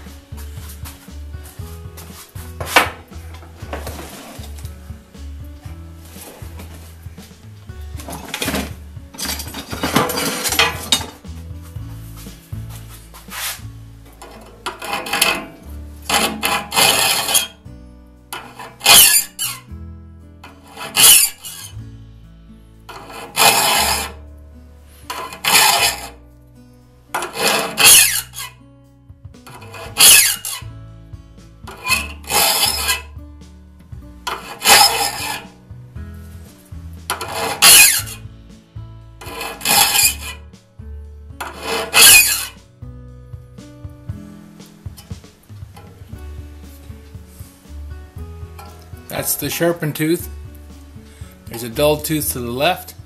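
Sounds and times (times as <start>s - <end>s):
quiet guitar music: 0.0s - 53.0s
file rasping on saw teeth: 14.2s - 17.6s, 18.4s - 19.7s, 20.4s - 21.8s, 22.9s - 24.2s, 25.0s - 26.2s, 27.2s - 28.6s, 29.5s - 30.6s, 31.7s - 33.1s, 34.3s - 35.6s, 37.1s - 38.2s, 39.2s - 40.4s, 41.4s - 42.6s.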